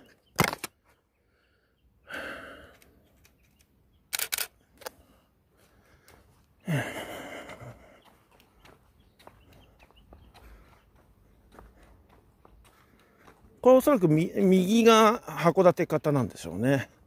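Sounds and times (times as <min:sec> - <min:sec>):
camera shutter clicks: 0:04.1 - 0:04.9.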